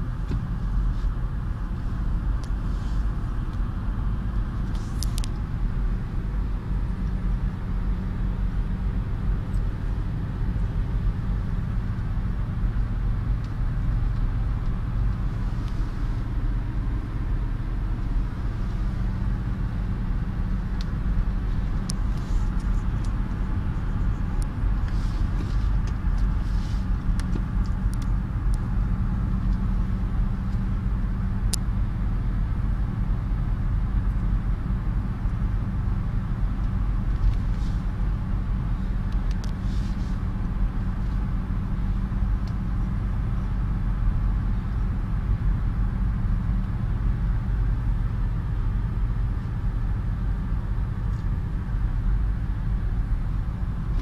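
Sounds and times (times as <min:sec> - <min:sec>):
car engine hum: 0:00.0 - 0:54.0
tyre and road noise: 0:00.0 - 0:54.0.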